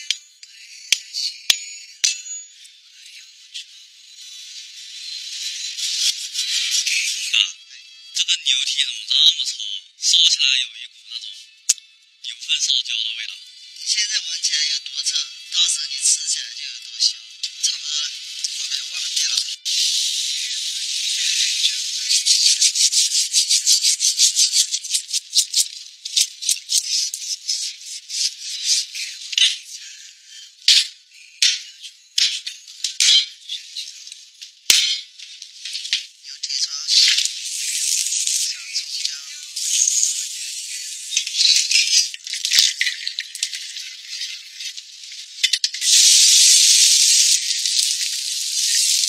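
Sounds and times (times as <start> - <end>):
oil sizzling in a wok: 45.8 - 49.0.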